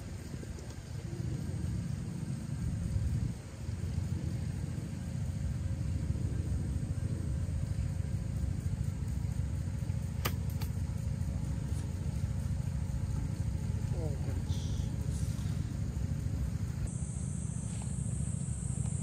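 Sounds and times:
sharp click: 10.2s - 10.8s.

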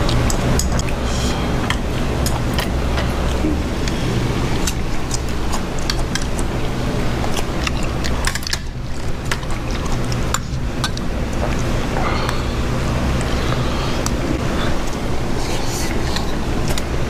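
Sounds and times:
low rumble: 0.0s - 5.5s.

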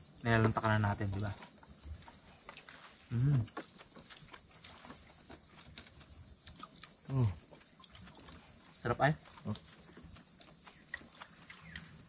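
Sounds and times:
crickets chirring: 0.0s - 12.0s
person humming: 3.1s - 3.5s.

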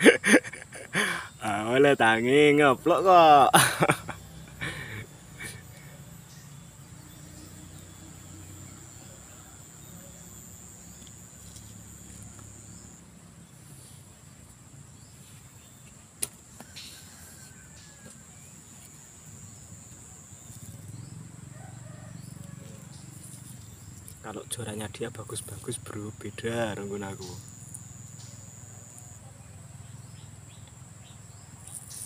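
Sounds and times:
high steady whine: 8.1s - 14.6s.

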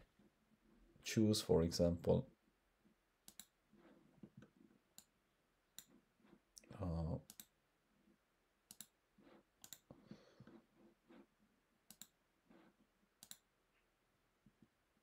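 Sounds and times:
computer mouse clicks: 3.2s - 3.6s, 4.3s - 6.4s, 7.2s - 7.6s, 8.7s - 11.3s, 11.9s - 12.6s, 13.2s - 13.5s.

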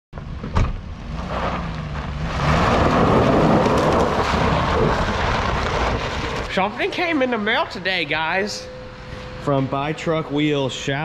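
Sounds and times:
car engine revving: 0.4s - 11.0s
tyres spinning on gravel: 1.0s - 7.6s.

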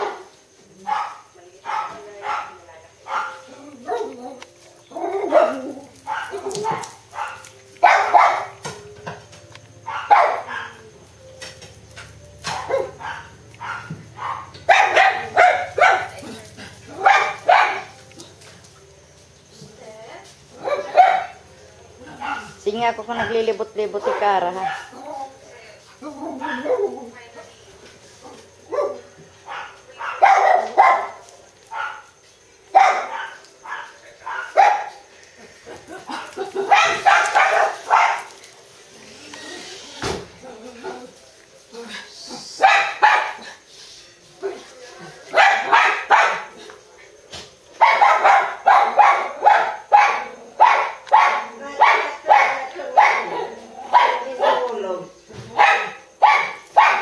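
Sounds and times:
puppy barking and yipping: 3.1s - 8.6s, 9.8s - 10.8s, 12.4s - 16.2s, 16.9s - 18.0s, 28.7s - 32.1s, 32.7s - 35.0s, 36.6s - 38.3s, 45.4s - 46.5s, 47.8s - 54.7s, 55.6s - 57.0s.

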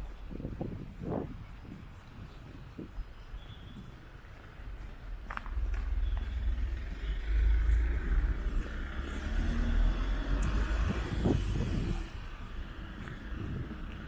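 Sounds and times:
car passing with tyre noise: 3.4s - 14.0s.

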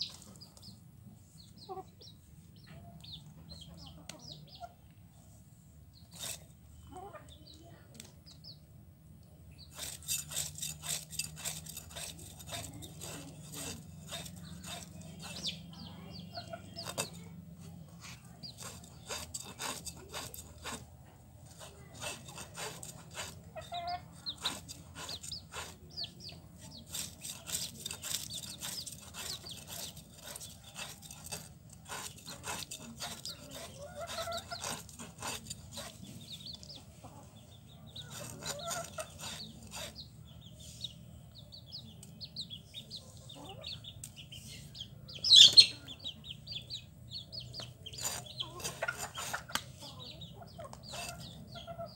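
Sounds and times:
chickens clucking: 0.0s - 8.7s, 9.5s - 51.9s
fish being scaled and cut: 6.0s - 6.5s, 9.6s - 36.8s, 37.9s - 40.0s, 47.5s - 49.7s, 50.6s - 51.6s.

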